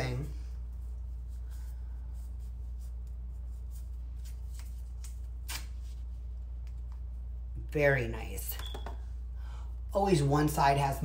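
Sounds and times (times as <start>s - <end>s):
steady low hum: 0.0s - 11.0s
paper wax strip rustling: 0.7s - 7.1s.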